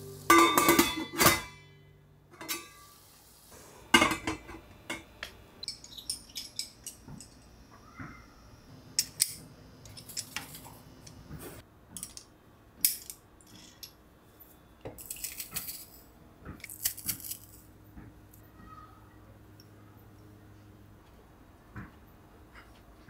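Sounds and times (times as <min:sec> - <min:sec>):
kitchenware clinking: 0:00.3 - 0:03.0, 0:03.9 - 0:08.1, 0:09.0 - 0:10.8.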